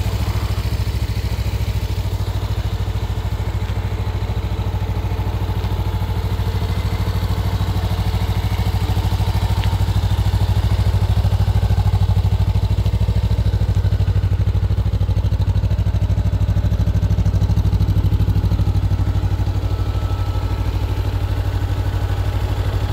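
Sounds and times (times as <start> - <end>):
motorcycle engine idling: 0.0 - 22.9.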